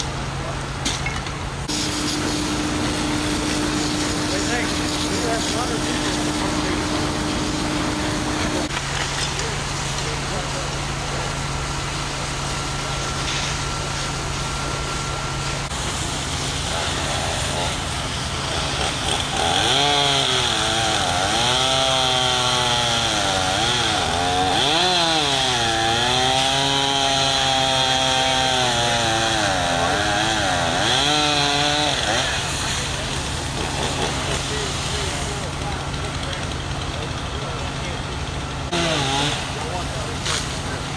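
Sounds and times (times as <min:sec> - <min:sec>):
steady low hum: 0:01.4 - 0:08.8
chainsaw revving and cutting: 0:01.7 - 0:08.7, 0:16.6 - 0:36.5, 0:38.6 - 0:40.8.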